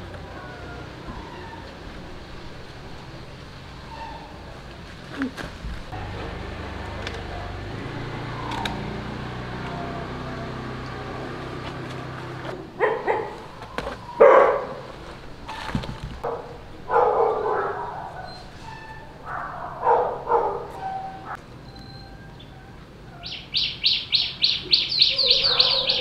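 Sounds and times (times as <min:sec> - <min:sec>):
dog barking: 0:12.6 - 0:14.9, 0:16.2 - 0:18.6, 0:19.2 - 0:21.4, 0:24.7 - 0:26.0.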